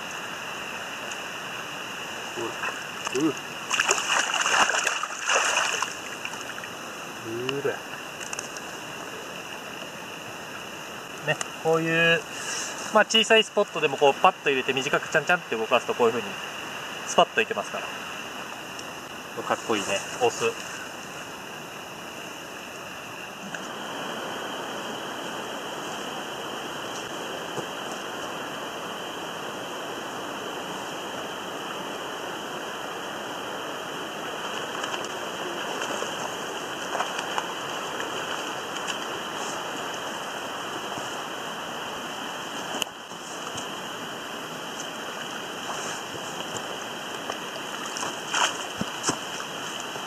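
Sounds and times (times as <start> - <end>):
running water: 0.0 - 50.0
fish splashing at surface: 3.0 - 6.6.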